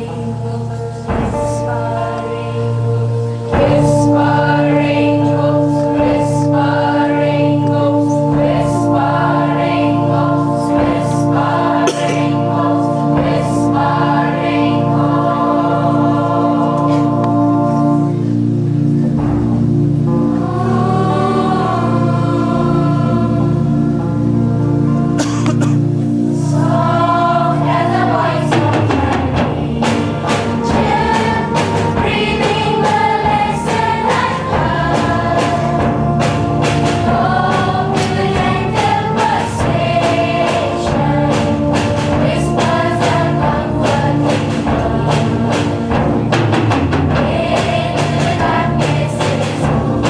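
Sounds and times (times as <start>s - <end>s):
choir singing: 0.0s - 50.0s
instrumental accompaniment: 0.0s - 50.0s.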